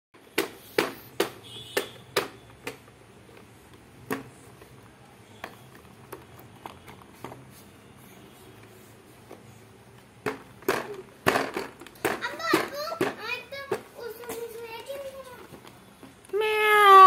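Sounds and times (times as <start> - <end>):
hand tapping plastic toy tray: 0.3 - 4.8.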